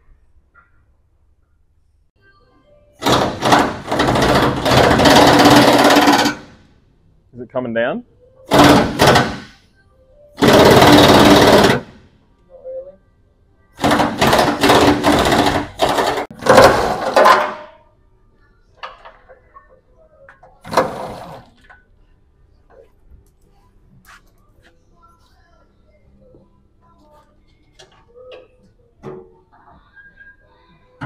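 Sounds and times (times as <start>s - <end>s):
pneumatic impact wrench hammering: 3.0s - 6.5s, 8.5s - 9.6s, 10.4s - 12.0s, 13.8s - 17.6s.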